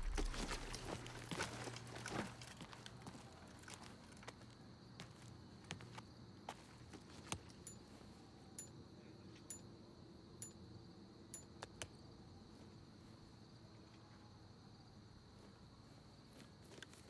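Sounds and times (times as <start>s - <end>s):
gear clinking: 0.0s - 2.7s
faint footsteps: 0.0s - 8.2s.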